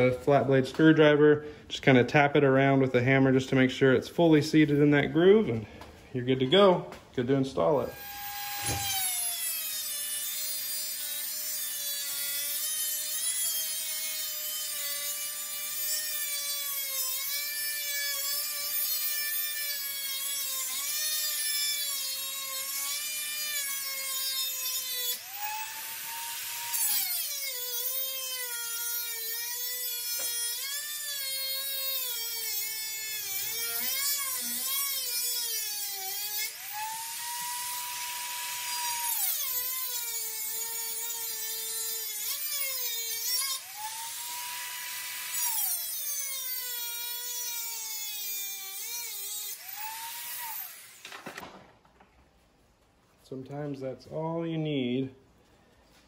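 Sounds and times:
angle grinder grinding metal: 6.2s - 51.4s.

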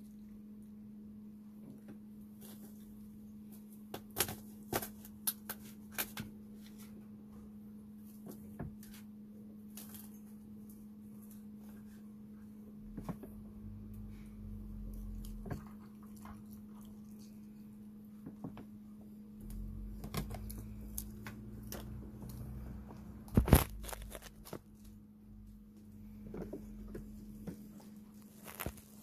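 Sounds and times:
fox chewing food: 14.9s - 17.6s.

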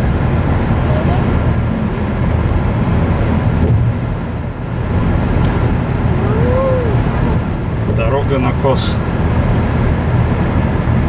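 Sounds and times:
car engine and tyre rumble: 0.0s - 11.0s
rising and falling tone: 6.0s - 7.6s.

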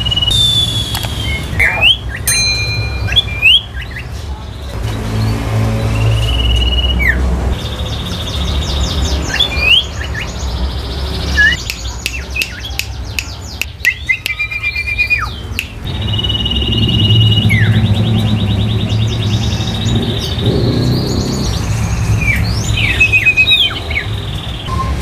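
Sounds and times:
songbirds trilling and whistling: 0.0s - 25.0s
bird clicks and chatter: 0.2s - 2.3s, 11.1s - 17.0s.

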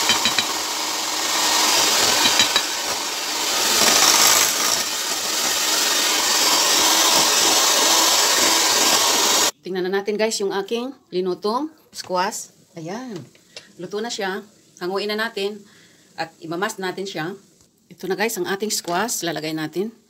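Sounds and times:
electric hand mixer whirring: 0.0s - 9.5s.

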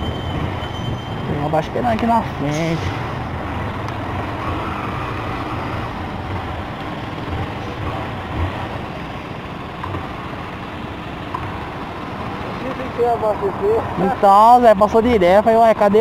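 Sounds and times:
motorcycle engine slowing: 3.1s - 13.8s.

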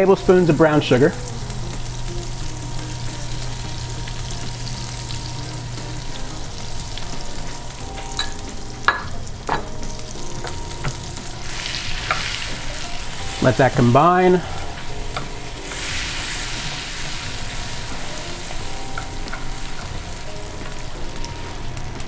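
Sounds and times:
butter sizzling in a skillet: 0.0s - 22.0s
spoon clinking: 8.0s - 9.7s.

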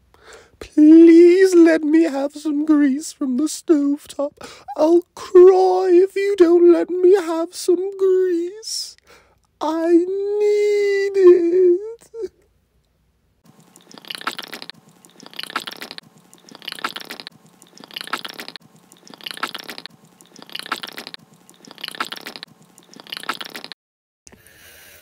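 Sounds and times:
wet chewing and slurping: 13.4s - 23.8s.

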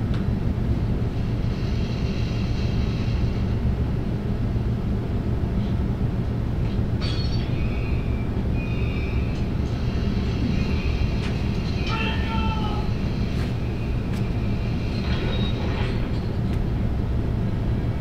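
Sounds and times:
low rumble with hum: 0.0s - 18.0s
thin high whining tones: 7.0s - 16.0s.

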